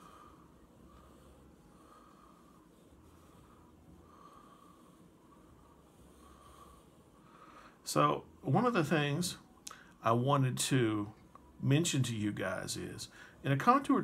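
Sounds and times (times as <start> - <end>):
faint slow breathing through nose: 0.0 - 7.9, 13.1 - 13.4.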